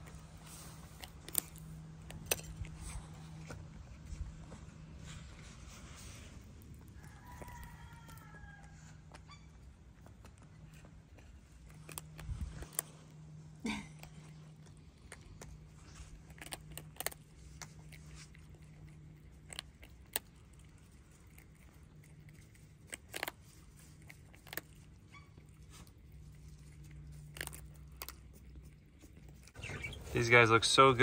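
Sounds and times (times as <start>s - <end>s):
low steady hum: 0.0s - 31.0s
prairie dog gnawing: 0.0s - 31.0s.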